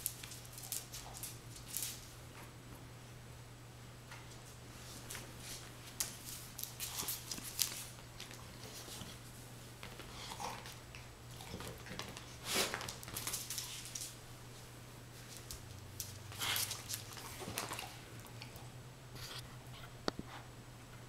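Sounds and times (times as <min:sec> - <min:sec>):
dogs scuffling: 0:00.0 - 0:02.2, 0:04.3 - 0:18.5.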